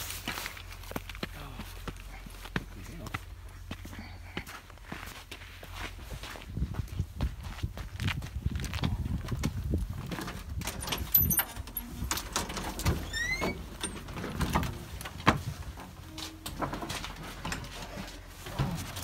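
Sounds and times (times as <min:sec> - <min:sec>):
footsteps: 0:00.0 - 0:10.5.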